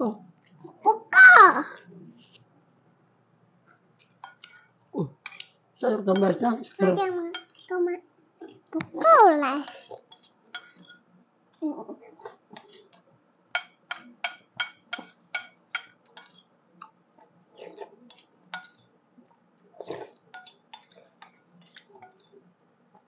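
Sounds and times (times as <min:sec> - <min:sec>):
spoon clinking against bowl: 0:07.3 - 0:07.7, 0:13.6 - 0:16.5, 0:20.3 - 0:22.3.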